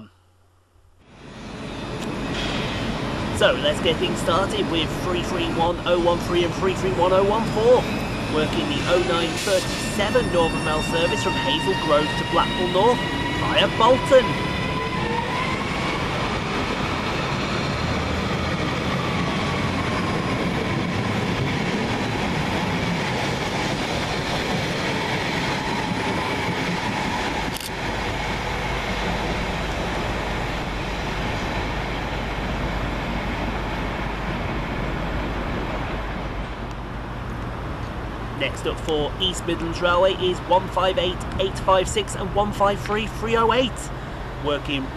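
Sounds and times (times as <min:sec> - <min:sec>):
faint train whine: 0:00.0 - 0:44.9
train wheels rumbling: 0:01.2 - 0:44.9.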